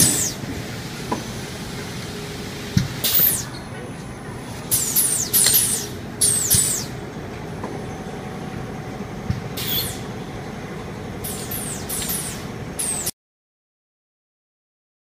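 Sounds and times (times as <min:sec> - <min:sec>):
pneumatic valve air hisses: 0:00.0 - 0:03.6, 0:04.5 - 0:07.0, 0:09.6 - 0:10.1, 0:11.2 - 0:13.1
machinery humming: 0:00.0 - 0:13.2.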